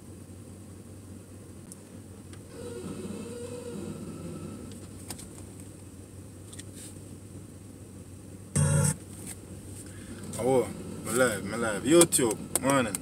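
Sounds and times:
low hum in car cabin: 0.0s - 13.0s.

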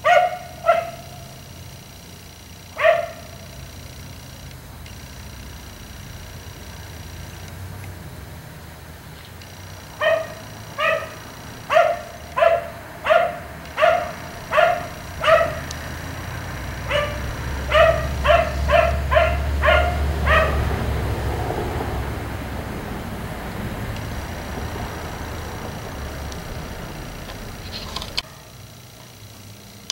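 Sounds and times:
dog barking: 0.0s - 1.4s, 2.6s - 3.5s, 9.9s - 21.1s.

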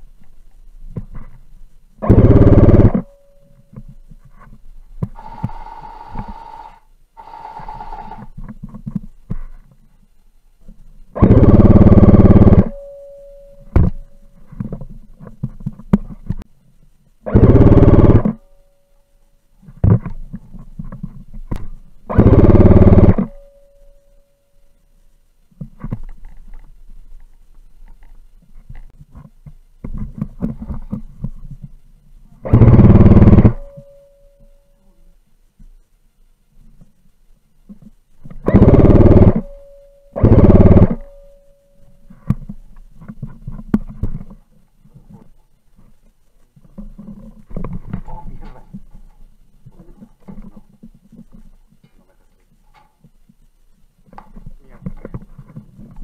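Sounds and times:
airsoft rifle full-auto burst: 2.0s - 3.1s, 5.2s - 8.3s, 11.2s - 12.8s, 17.2s - 18.4s, 22.1s - 23.4s, 32.4s - 33.7s, 38.4s - 39.5s, 40.2s - 41.1s.

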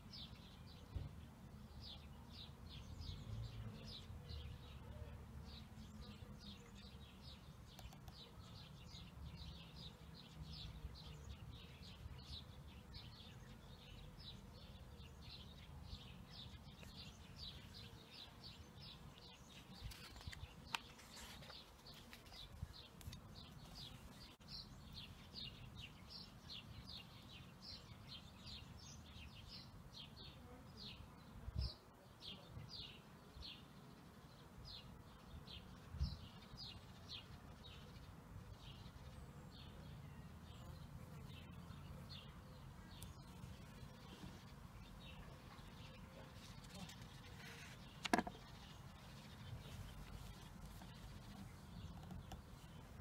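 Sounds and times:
small bird chirping: 1.8s - 30.3s, 35.6s - 53.0s
page rustling: 19.8s - 22.3s.

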